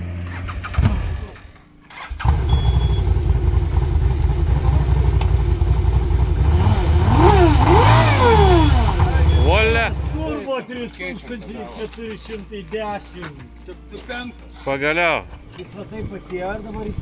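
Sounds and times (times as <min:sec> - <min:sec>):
buggy engine idling and revving: 0:00.0 - 0:10.4.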